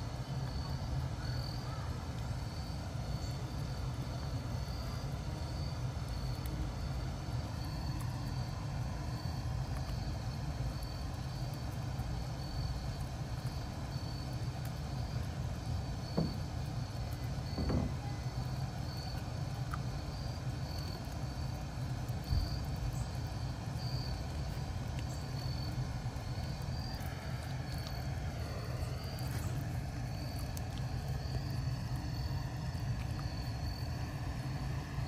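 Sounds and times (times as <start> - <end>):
faint insect chirps: 0.0 - 35.0
soft knocks: 16.2 - 16.4, 17.6 - 18.0.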